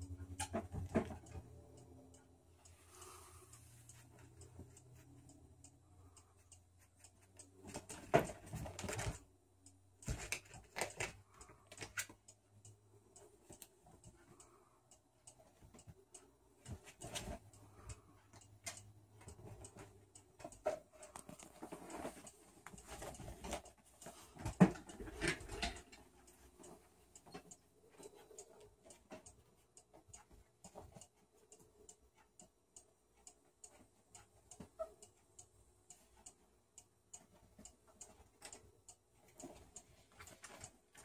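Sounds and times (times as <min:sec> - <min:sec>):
animal rustling and scratching: 0:21.3 - 0:25.8.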